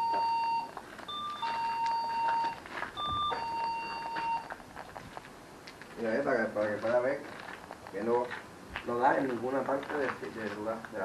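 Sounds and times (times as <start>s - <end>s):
motion-sensor alarm two-note chime: 0.0s - 4.5s.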